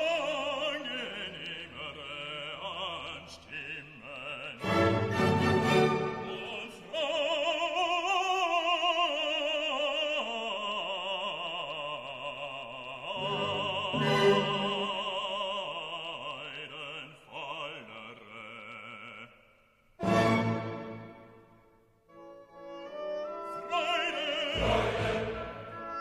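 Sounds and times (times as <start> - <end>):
operatic solo voice singing: 0.0 - 20.4, 22.9 - 26.0
classical accompaniment: 4.6 - 6.9, 13.1 - 15.6, 20.0 - 26.0.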